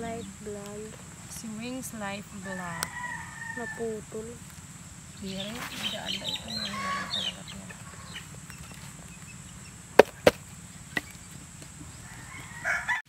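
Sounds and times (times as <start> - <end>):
rustling: 3.7 - 9.4
plastic pot knocks: 10.0 - 10.4.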